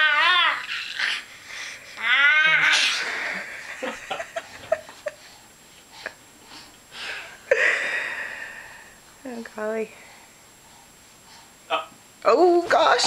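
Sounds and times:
baby squealing: 0.0s - 1.2s.

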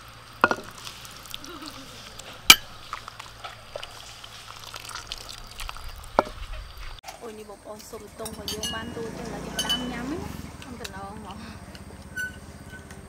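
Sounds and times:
metal ladle clinking on pots: 8.2s - 10.1s.

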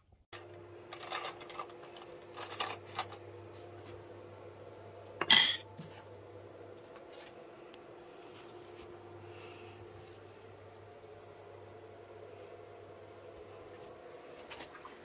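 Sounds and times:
faint steady hum: 0.0s - 15.0s
fork clinking on a plate: 5.2s - 5.6s.

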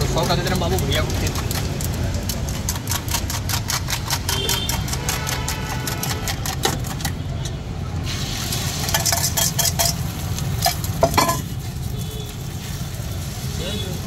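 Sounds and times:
light sizzling: 8.0s - 14.0s
spoon clinking on steel bowl: 10.6s - 11.5s.

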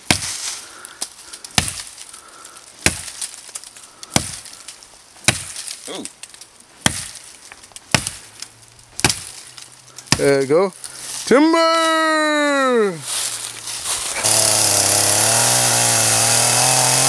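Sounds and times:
axe chopping tree trunk: 0.0s - 0.4s, 1.5s - 2.0s, 2.8s - 4.6s, 5.2s - 5.8s, 6.8s - 7.3s, 7.9s - 8.2s, 9.0s - 9.5s, 10.1s - 10.5s, 14.2s - 17.0s.

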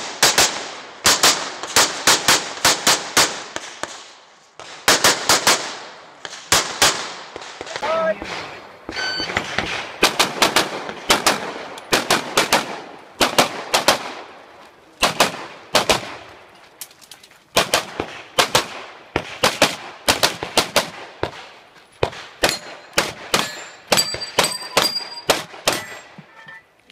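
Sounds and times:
pistol shots: 4.6s - 14.4s, 15.0s - 16.3s, 17.5s - 26.2s
ringing tone: 9.0s - 9.3s, 24.0s - 26.7s.

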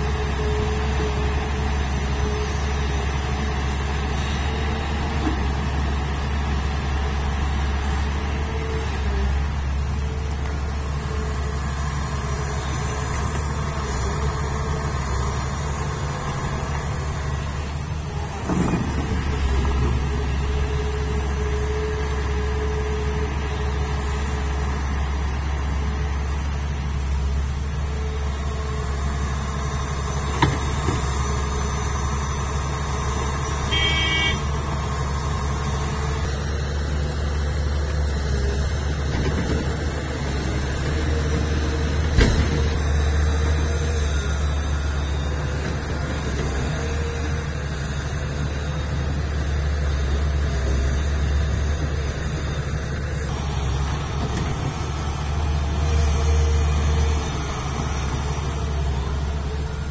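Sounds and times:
excavator diesel engine running: 0.0s - 59.9s
short high-pitched horn toot: 33.6s - 34.5s.

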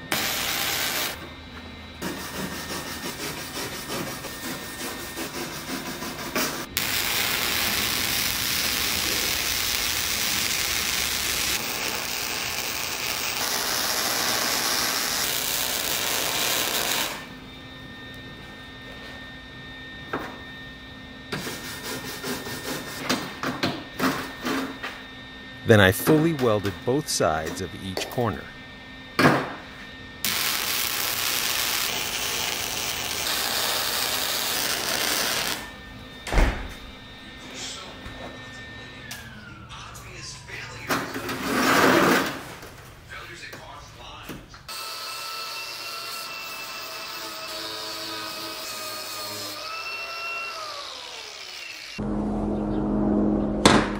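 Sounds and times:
welder arc crackling: 0.0s - 1.2s, 6.8s - 17.3s, 30.2s - 35.6s
steady hum: 0.0s - 41.2s, 52.0s - 53.9s.

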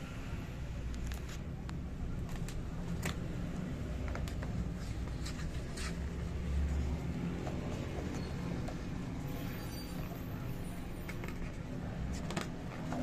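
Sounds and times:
magazine pages rustling: 2.2s - 6.4s.

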